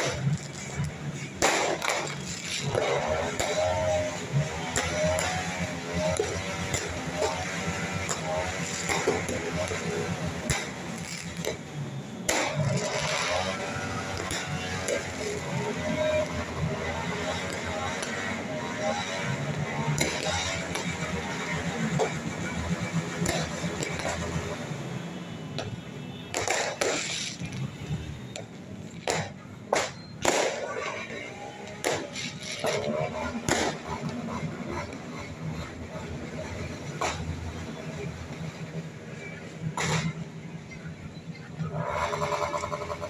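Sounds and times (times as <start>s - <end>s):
fireworks bangs: 0.0s - 5.4s, 8.0s - 15.5s, 25.5s - 34.9s.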